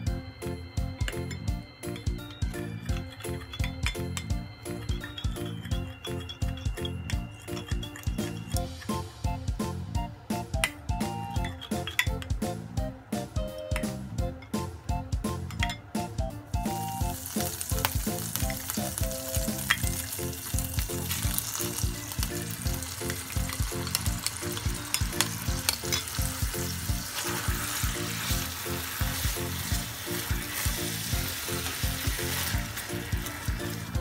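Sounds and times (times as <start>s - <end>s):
background music with a beat: 0.0s - 34.0s
utensils scraping and clicking: 2.9s - 4.3s, 4.9s - 9.0s
sauce sizzling in a frying pan: 16.8s - 34.0s.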